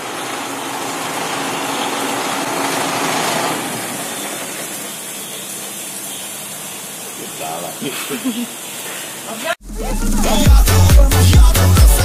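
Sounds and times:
farm machinery running: 0.0s - 7.9s.

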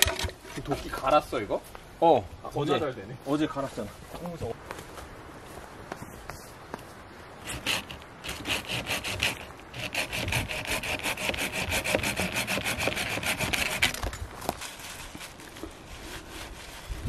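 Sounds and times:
hand saw cutting log: 7.4s - 14.1s, 15.1s - 17.0s.

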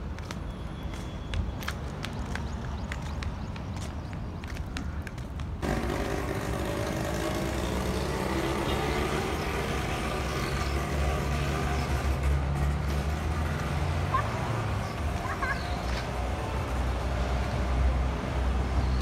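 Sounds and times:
child's footsteps on cobblestones: 0.0s - 19.0s
vehicle engine running: 5.6s - 15.4s.

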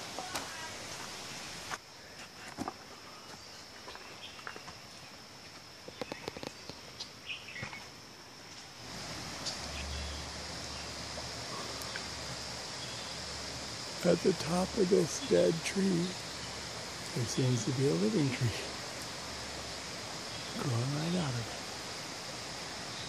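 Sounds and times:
insects droning: 0.0s - 23.0s
low steady noise: 6.9s - 23.0s.

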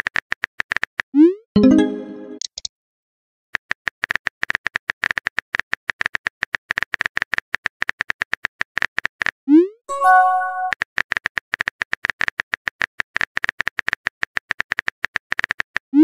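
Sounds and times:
brief chime: 9.9s - 10.7s.

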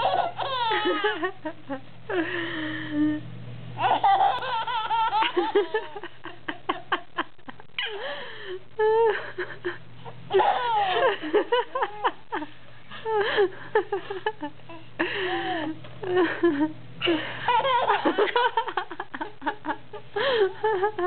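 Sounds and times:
baby laughing: 0.0s - 1.4s, 3.8s - 6.0s, 10.3s - 11.2s, 17.5s - 18.9s
woman laughing: 0.0s - 3.2s, 5.1s - 21.0s.

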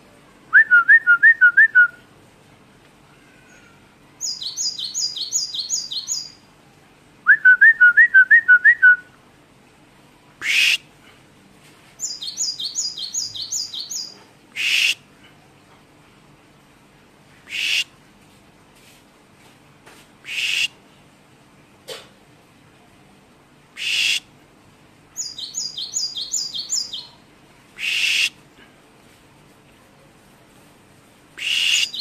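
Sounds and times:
tit singing trills and whistles: 4.2s - 6.4s, 10.4s - 10.8s, 12.0s - 15.0s, 17.5s - 17.9s, 20.2s - 20.8s, 23.8s - 24.2s, 25.2s - 27.2s, 27.8s - 28.4s, 31.4s - 32.0s
harsh rasping bird notes: 17.5s - 17.9s, 20.2s - 20.8s, 27.8s - 28.4s, 31.4s - 32.0s.

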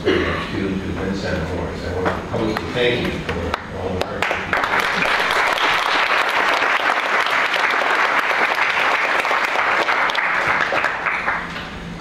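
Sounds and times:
audience applauding: 4.0s - 11.7s.

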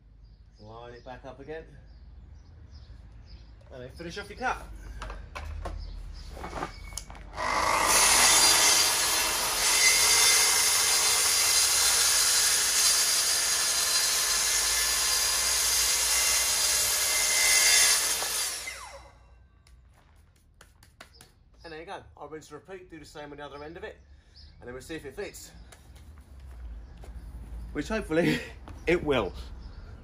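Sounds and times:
circular saw cutting board: 7.4s - 19.1s.

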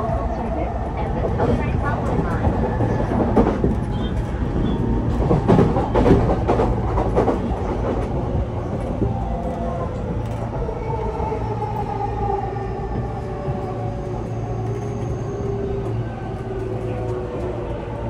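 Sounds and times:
train wheels clacking over rail joints: 5.1s - 8.2s.

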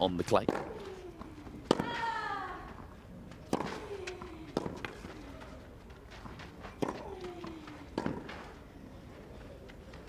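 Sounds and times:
rackets hitting tennis ball: 0.3s - 5.4s, 6.0s - 8.6s.

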